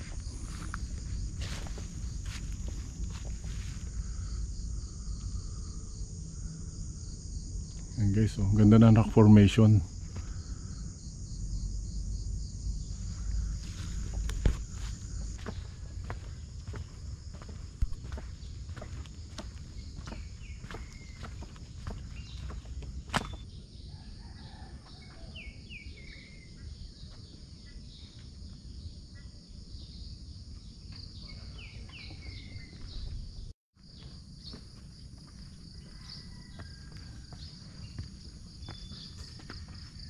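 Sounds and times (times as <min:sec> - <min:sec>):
low microphone rumble: 0:00.0 - 0:18.8
insects droning: 0:00.0 - 0:40.0
bird chirps: 0:19.7 - 0:23.8, 0:30.6 - 0:33.2.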